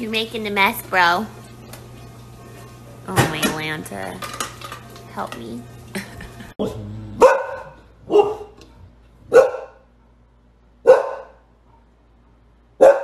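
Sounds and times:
dog barking: 7.2 - 8.6, 9.3 - 9.9, 10.8 - 11.4, 12.8 - 13.0.

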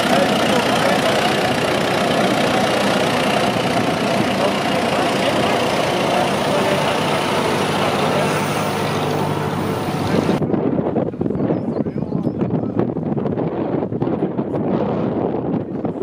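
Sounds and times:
lorry engine running: 0.0 - 10.4.

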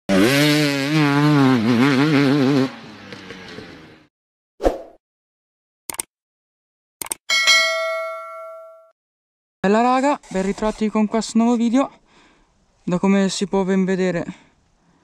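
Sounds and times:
motorcycle engine revving: 0.1 - 4.1
short clicks: 5.9 - 6.1, 7.0 - 7.2.

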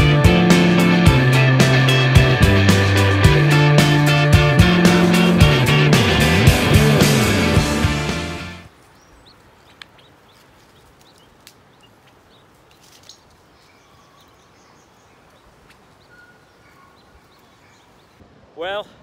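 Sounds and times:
soft outdoor background noise: 8.6 - 19.0
quail chirping: 8.8 - 18.2.

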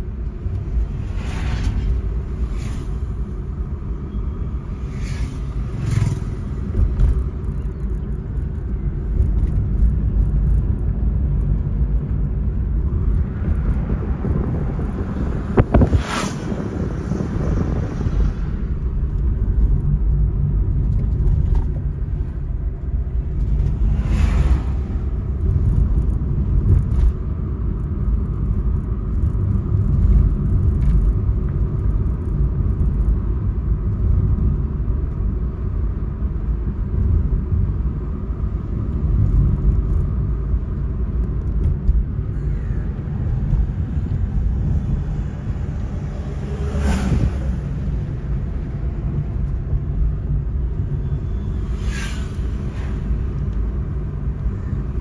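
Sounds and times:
car driving rumble: 0.0 - 55.0
brief whoosh: 0.8 - 3.4, 4.7 - 6.6, 15.6 - 18.6, 51.0 - 53.6.

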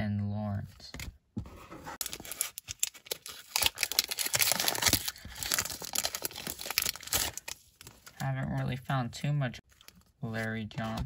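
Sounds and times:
foil wrapper tearing and crinkling: 2.0 - 8.0.

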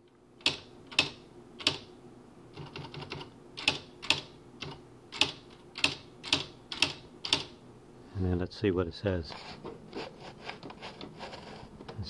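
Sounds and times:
faint steady hum: 0.0 - 12.0
electronic typewriter key strikes: 0.4 - 1.9, 2.6 - 7.5.

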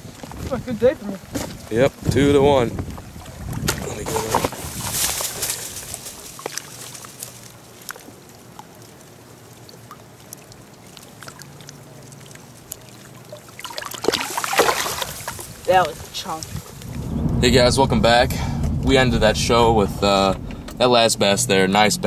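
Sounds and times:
small water splashes: 0.0 - 17.0
water sloshing and trickling: 0.0 - 17.2.

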